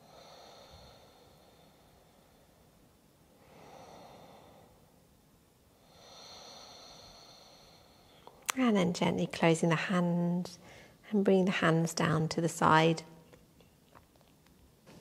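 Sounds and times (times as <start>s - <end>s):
faint slow breathing: 0.0s - 5.0s, 5.7s - 8.5s, 10.6s - 11.0s.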